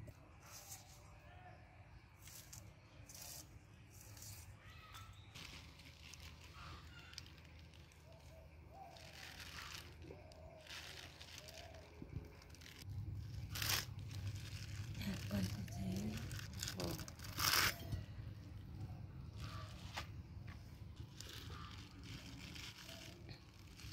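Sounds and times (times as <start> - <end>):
faint bird chirps: 2.8 - 12.9
vegetable leaves rustling: 5.4 - 18.1, 21.0 - 23.9.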